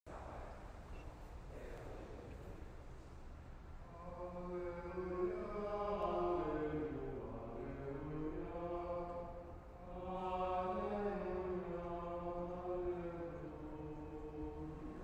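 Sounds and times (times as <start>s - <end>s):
slow chant in long held notes: 3.8s - 15.0s.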